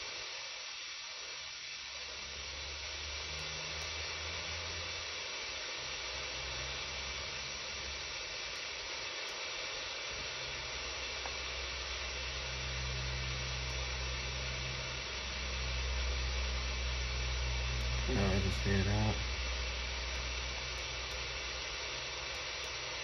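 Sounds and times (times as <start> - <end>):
radio static hiss: 0.0 - 23.0
low hum: 10.2 - 23.0.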